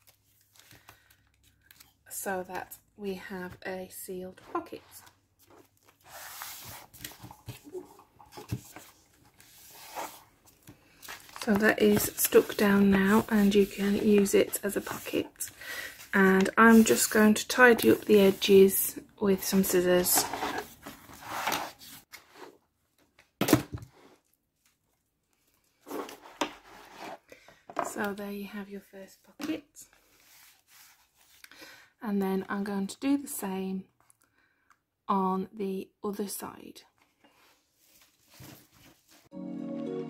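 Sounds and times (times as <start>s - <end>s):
paper rustling and rubbing: 4.6s - 18.7s, 30.0s - 31.4s.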